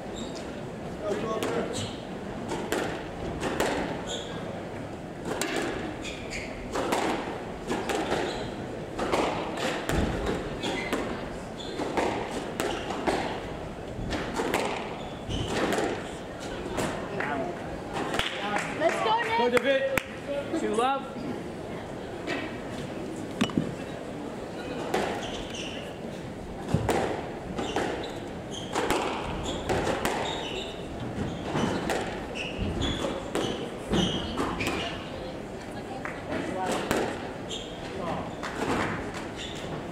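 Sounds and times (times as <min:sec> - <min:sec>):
shoes squeaking on floor: 0:00.1 - 0:00.6, 0:01.5 - 0:02.1, 0:04.0 - 0:04.5, 0:05.9 - 0:06.8, 0:08.0 - 0:08.6, 0:10.2 - 0:12.1, 0:14.8 - 0:16.0, 0:24.6 - 0:26.0, 0:27.6 - 0:35.1, 0:37.4 - 0:39.9
squash ball hits: 0:02.5 - 0:04.0, 0:05.2 - 0:06.0, 0:06.6 - 0:11.2, 0:11.8 - 0:13.5, 0:14.1 - 0:16.1, 0:26.7 - 0:28.1, 0:28.7 - 0:30.5, 0:31.4 - 0:35.0, 0:36.6 - 0:37.3.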